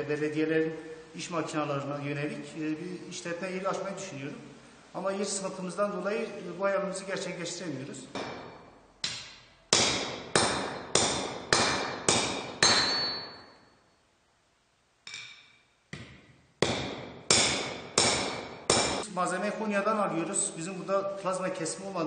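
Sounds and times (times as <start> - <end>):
hammer striking metal: 8.1 - 13.6, 15.1 - 19.0.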